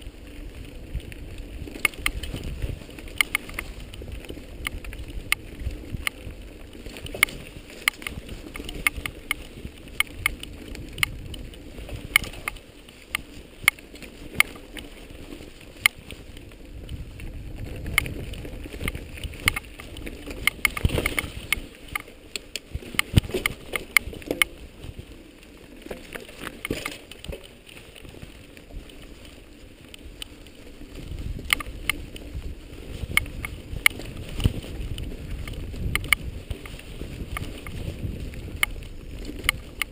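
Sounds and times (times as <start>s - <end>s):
wind rumble on microphone: 0.0s - 39.9s
camera handling clicks and rattles: 1.7s - 2.5s, 3.1s - 4.0s, 6.9s - 13.8s, 17.9s - 24.6s, 26.0s - 27.5s, 35.4s - 39.9s.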